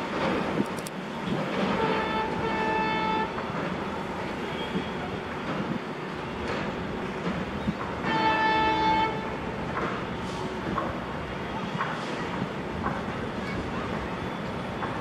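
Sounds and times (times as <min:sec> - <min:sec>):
steady background noise: 0:00.0 - 0:15.0
locomotive horn blast: 0:01.7 - 0:03.5, 0:08.0 - 0:09.4.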